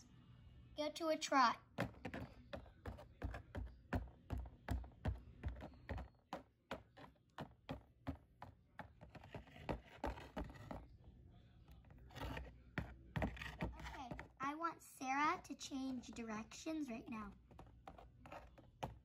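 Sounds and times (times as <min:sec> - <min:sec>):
toy hooves tapping: 0:01.8 - 0:10.8, 0:11.8 - 0:14.5, 0:15.7 - 0:19.0.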